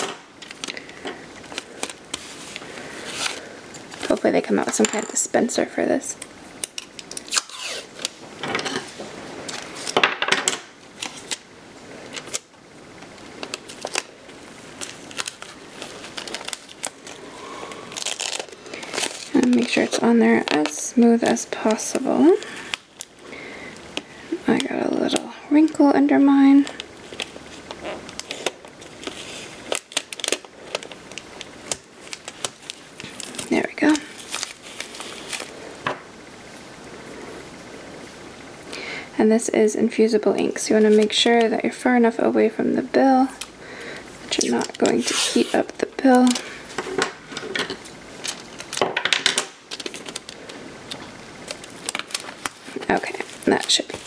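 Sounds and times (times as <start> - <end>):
paper crinkling: 0.4 - 4.3, 10.9 - 35.8, 40.4 - 41.5, 44.2 - 48.8, 49.7 - 54.0
tape peeling and tearing: 6.6 - 8.2, 13.1 - 21.8, 27.0 - 35.5, 44.3 - 46.4, 49.4 - 54.0.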